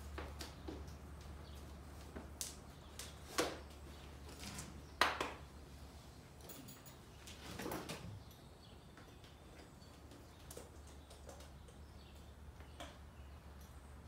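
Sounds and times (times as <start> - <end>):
horse tack clicking and knocking: 9.0 - 13.0.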